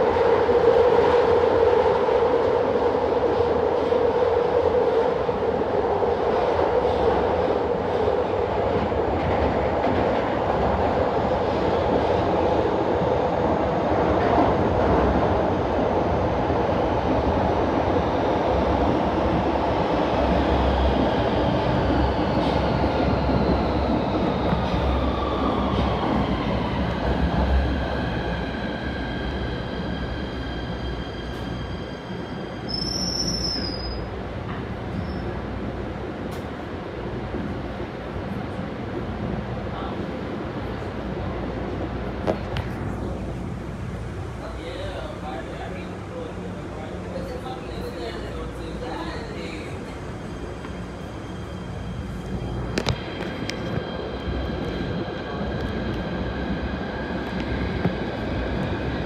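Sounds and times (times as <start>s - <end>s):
train wheel and track rumble: 0.0s - 59.0s.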